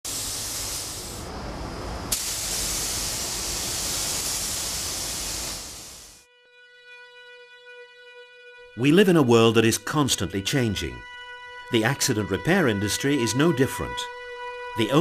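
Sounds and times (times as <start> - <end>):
paint spray gun hissing: 0.0 - 6.2
spray gun click: 2.1 - 5.9.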